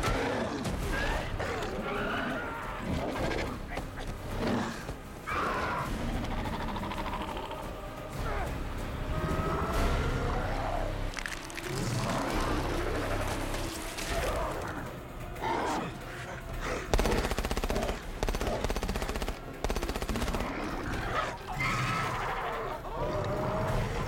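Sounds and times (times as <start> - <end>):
rapid automatic gunfire: 16.9 - 21.1.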